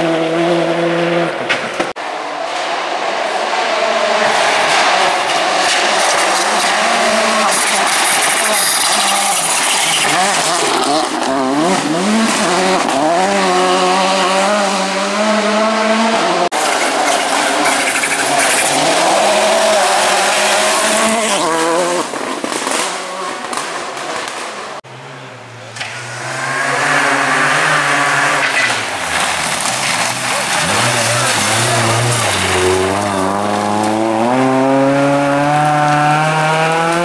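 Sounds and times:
rally car engine revving: 0:00.0 - 0:37.0
second rally car approaching: 0:09.9 - 0:37.0.

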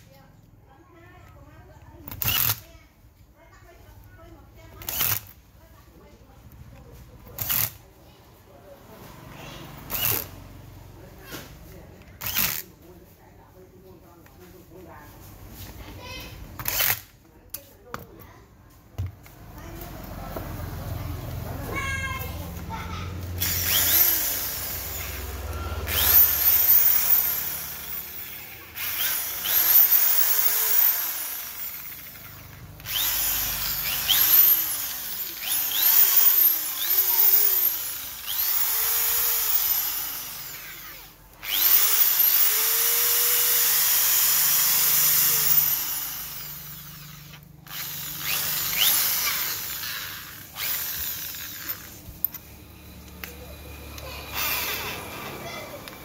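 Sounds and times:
electric drill motor whine: 0:23.4 - 0:53.2, 0:53.9 - 0:55.3.

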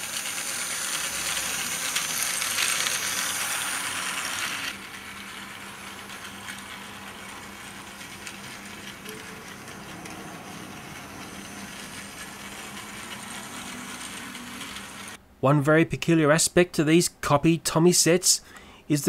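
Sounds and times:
toy train motor whirring: 0:00.0 - 0:15.2.

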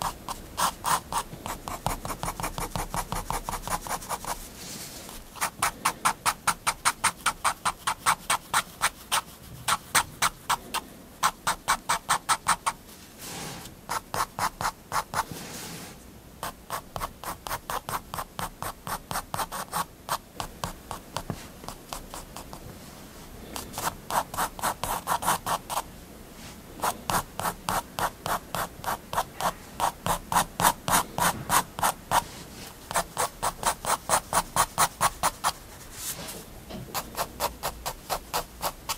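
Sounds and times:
fineliner scratching on paper: 0:00.0 - 0:04.4, 0:05.3 - 0:10.6, 0:16.4 - 0:22.6, 0:23.8 - 0:25.8, 0:26.8 - 0:32.2, 0:32.9 - 0:35.6, 0:36.9 - 0:38.9.

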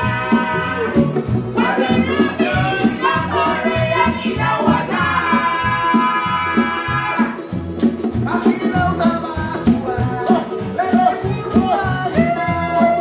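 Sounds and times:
voices singing together: 0:00.0 - 0:07.6
rattling percussion beat: 0:00.0 - 0:13.0
strummed acoustic guitar: 0:00.0 - 0:13.0.

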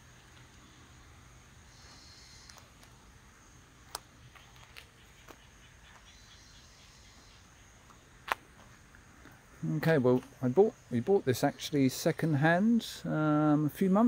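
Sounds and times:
insects chirping: 0:00.0 - 0:14.0
low steady hiss: 0:00.0 - 0:14.0.

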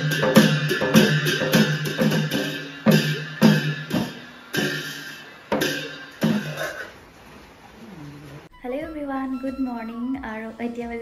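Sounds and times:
drum beaten with a stick: 0:00.0 - 0:06.9
hand cymbals struck: 0:00.0 - 0:06.9.

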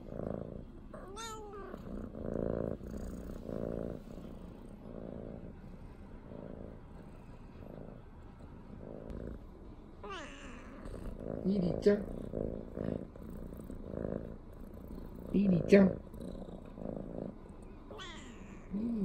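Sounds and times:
cat purring: 0:00.0 - 0:19.0.

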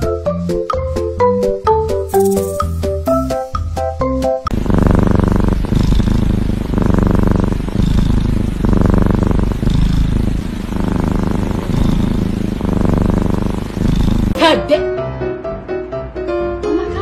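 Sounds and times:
kitten purring loudly: 0:04.5 - 0:14.5.

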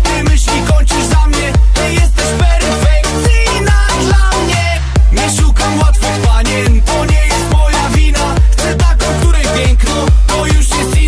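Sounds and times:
dance music with kick drum beat: 0:00.0 - 0:11.0.

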